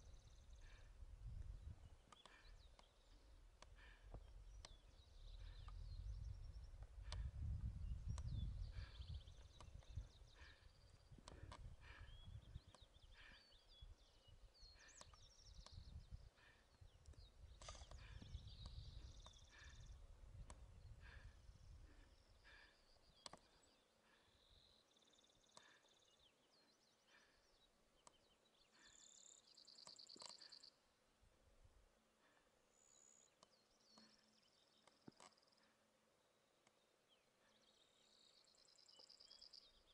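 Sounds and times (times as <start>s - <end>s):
faint birdsong: 0.0s - 39.9s
wind rumble on microphone: 1.0s - 2.0s, 5.2s - 12.7s, 15.6s - 16.3s, 17.2s - 22.0s.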